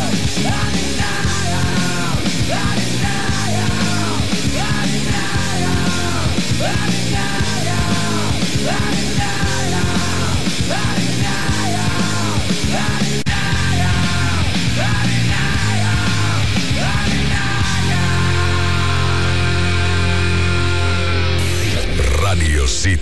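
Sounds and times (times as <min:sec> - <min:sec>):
rock song on radio: 0:00.0 - 0:23.0.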